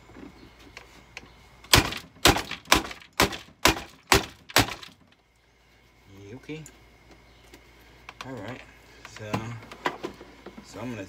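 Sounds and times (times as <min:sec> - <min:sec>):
hard knocks: 0:01.7 - 0:05.0.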